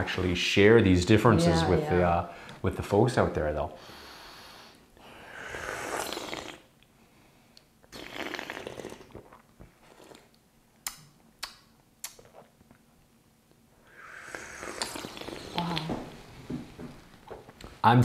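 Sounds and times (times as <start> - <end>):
tea slurping: 5.6 - 6.6, 7.9 - 10.4, 14.0 - 15.6.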